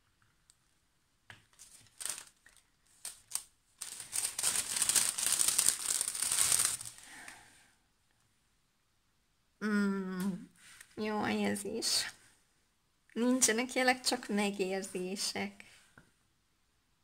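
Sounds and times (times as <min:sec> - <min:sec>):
plastic packaging crinkling: 0:01.4 - 0:07.4.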